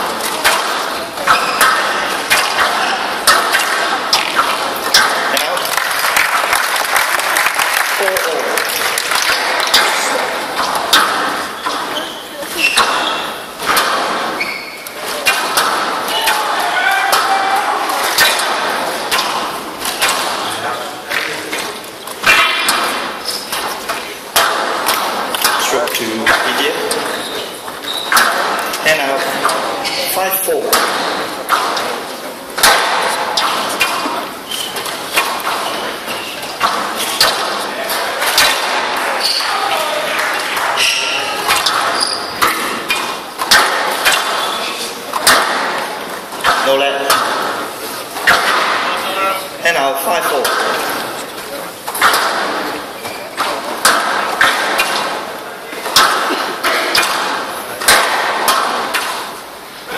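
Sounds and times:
squash ball striking racket and walls: 0.0s - 6.8s, 8.4s - 49.2s, 49.8s - 59.9s
large hall background noise: 0.0s - 59.9s.

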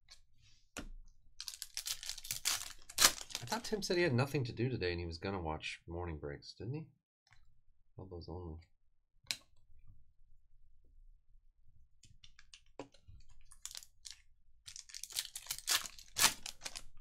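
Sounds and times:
foil pack crinkling and tearing: 1.4s - 3.8s, 13.4s - 17.0s.

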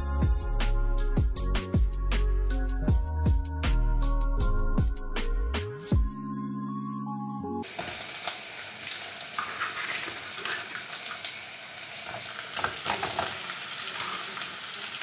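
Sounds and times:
vegetables sizzling in a pot: 7.6s - 15.0s.

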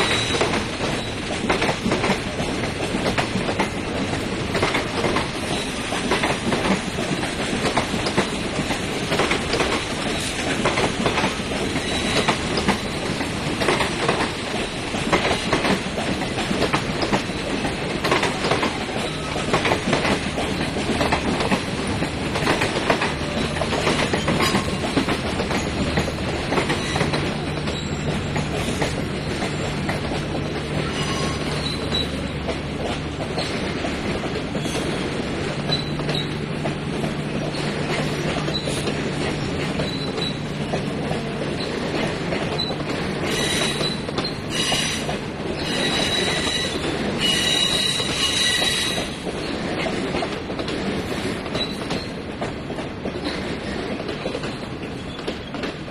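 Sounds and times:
train rumble: 0.0s - 55.9s
wheels clicking over rail joints: 0.0s - 55.9s
wheels squealing: 23.2s - 30.0s, 30.8s - 32.3s, 37.5s - 40.4s, 42.5s - 49.2s.

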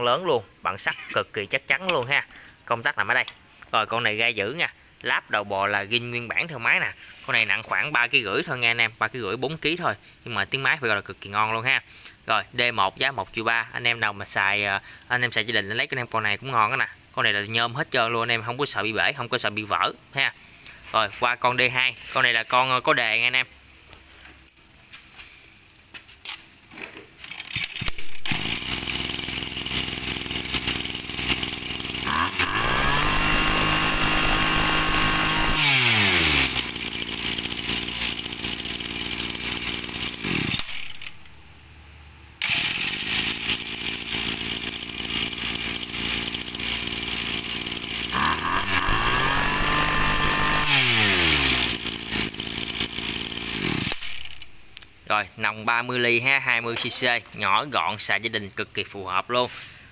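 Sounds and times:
brush cutter engine revving: 27.2s - 41.5s, 42.4s - 55.0s.

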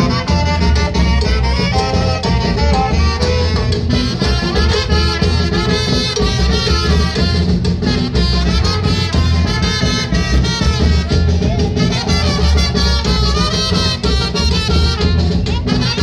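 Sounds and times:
latin dance music with bass beat: 0.0s - 16.0s.

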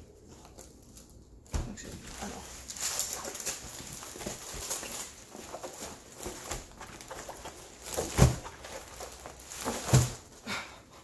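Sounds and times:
stiff canvas rustling and crackling: 0.0s - 11.0s.

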